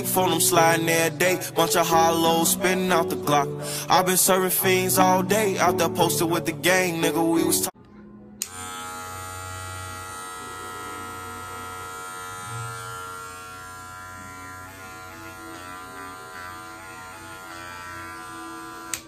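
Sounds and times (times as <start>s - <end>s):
hair clipper buzzing: 8.4s - 19.0s.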